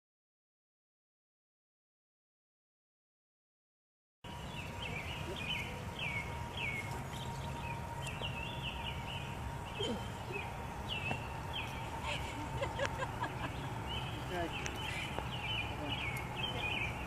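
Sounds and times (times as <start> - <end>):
low background rumble: 4.3 - 17.0
songbird chirping: 4.3 - 17.0.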